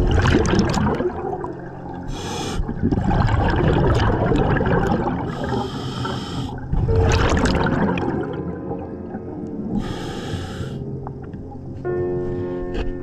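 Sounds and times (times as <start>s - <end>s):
bubbles gurgling underwater: 0.0s - 9.9s
regulator hissing inhalations: 2.1s - 2.7s, 5.3s - 6.7s, 9.7s - 10.9s.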